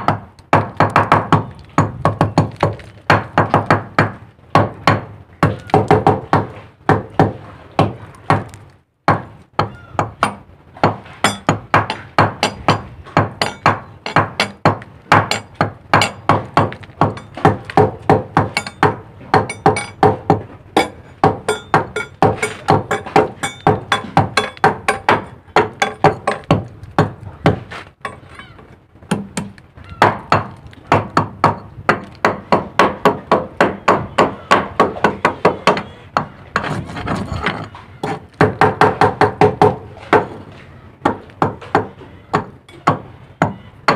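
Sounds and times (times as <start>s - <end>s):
hammer striking chisel on steel: 9.6s - 26.6s.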